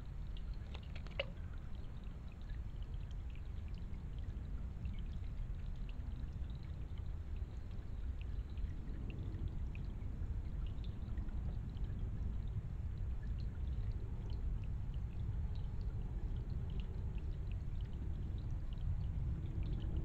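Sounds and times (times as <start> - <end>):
stream trickling over rocks: 0.0 - 20.0
faint short ticks: 0.4 - 1.4.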